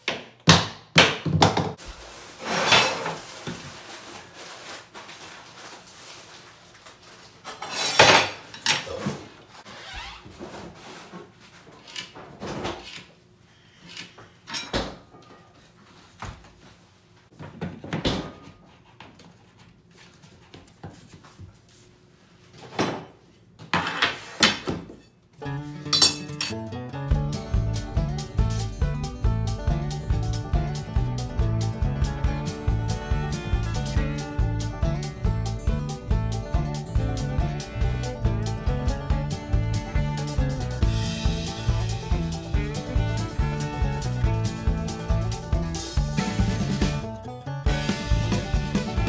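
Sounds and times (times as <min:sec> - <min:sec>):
boards scraping: 0:02.4 - 0:03.6, 0:23.7 - 0:24.7.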